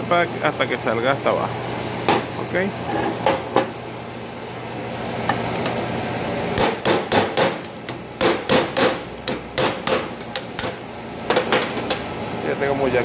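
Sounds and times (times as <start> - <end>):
hammer striking metal: 6.6 - 11.8.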